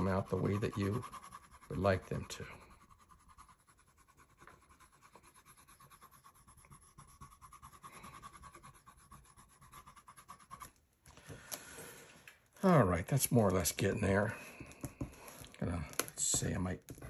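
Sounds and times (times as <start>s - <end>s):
pencil scratching on paper: 0.0s - 10.8s.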